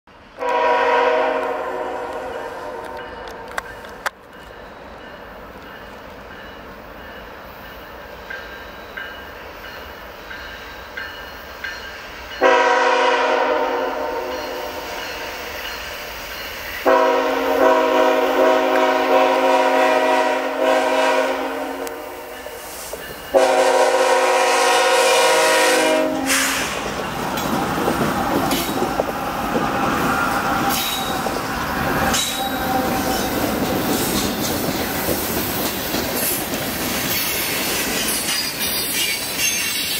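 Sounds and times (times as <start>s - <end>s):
train rumble: 0.1s - 39.9s
locomotive air horn blasts: 0.4s - 3.5s, 12.4s - 15.0s, 16.8s - 22.4s, 23.3s - 26.8s.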